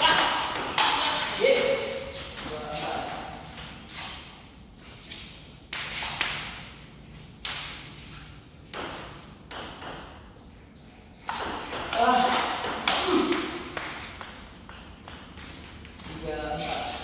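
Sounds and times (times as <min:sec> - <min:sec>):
table tennis ball bouncing: 0:00.0 - 0:03.8, 0:08.7 - 0:10.3, 0:11.2 - 0:16.3.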